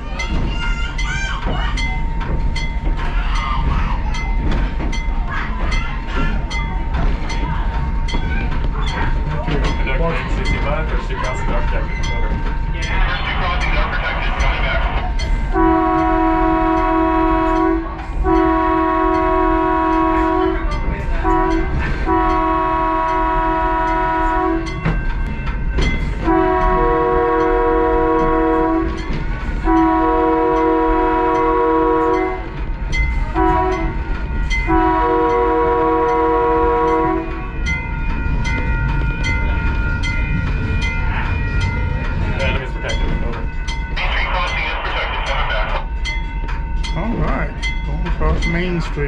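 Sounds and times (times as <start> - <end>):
train rumbling on track: 0.0 - 49.0
train horn signal: 15.5 - 24.8, 26.2 - 32.6, 33.3 - 37.6.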